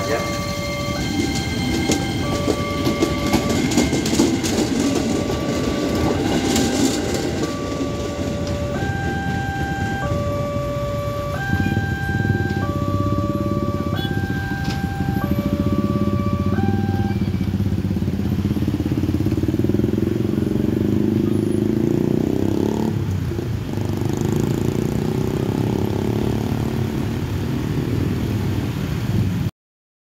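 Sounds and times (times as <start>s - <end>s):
two-tone crossing warning signal: 0.0s - 18.6s
motorcycle engines revving: 0.0s - 29.4s.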